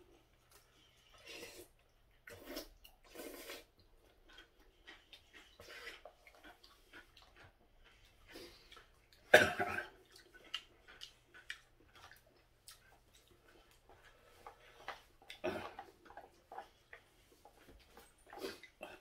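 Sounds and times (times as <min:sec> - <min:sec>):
soft chewing: 0:00.0 - 0:19.0
person coughing: 0:09.3 - 0:10.0.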